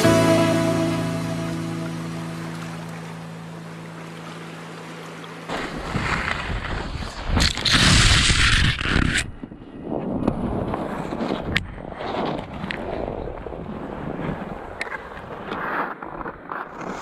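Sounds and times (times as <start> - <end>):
background music: 0.0 - 5.5
skis scraping through snow: 5.5 - 13.2, 13.8 - 17.0
wind on camera microphone: 5.5 - 17.0.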